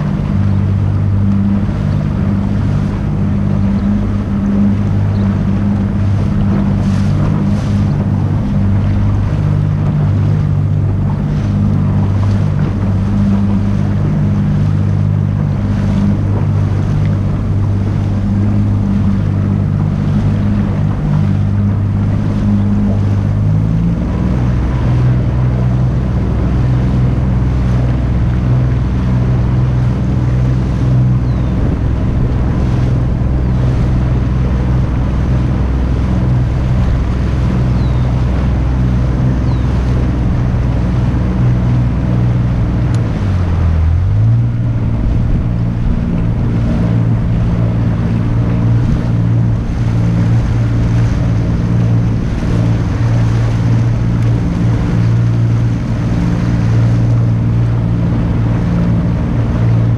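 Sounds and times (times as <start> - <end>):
outboard motor humming: 0.0 - 59.9
water rushing past hull: 0.0 - 59.9
wind on microphone: 0.0 - 59.9.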